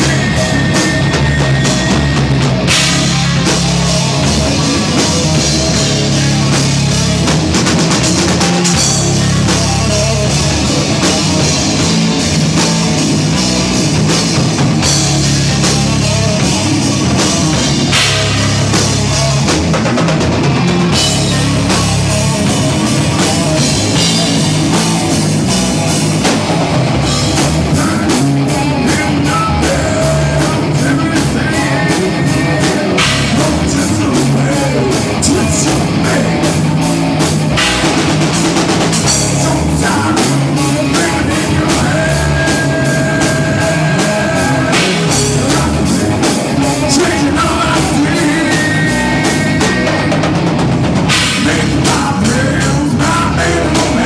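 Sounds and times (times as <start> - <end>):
driving drum kit: 0.0 - 54.0
loud rock music: 0.0 - 54.0.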